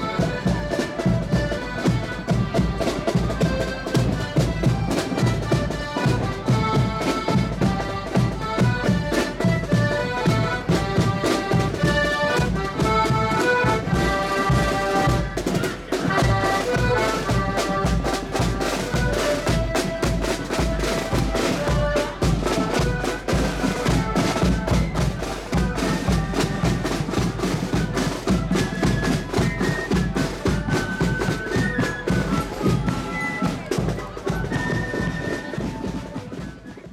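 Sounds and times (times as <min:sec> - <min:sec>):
accordion band playing a march: 0:00.0 - 0:36.9
snare drums: 0:00.0 - 0:36.9.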